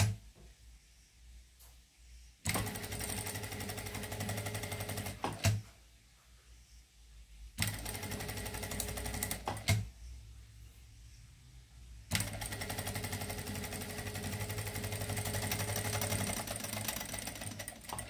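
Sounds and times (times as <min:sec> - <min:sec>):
sewing machine stitching: 0:02.5 - 0:05.6, 0:07.6 - 0:09.8, 0:12.1 - 0:18.0.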